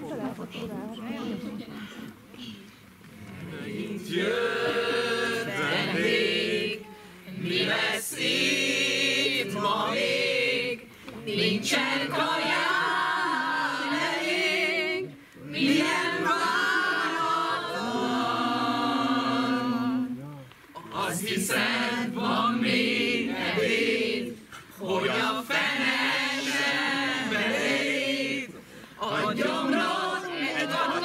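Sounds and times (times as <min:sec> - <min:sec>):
mixed choir singing a cappella: 0:03.2 - 0:20.2, 0:20.8 - 0:31.0.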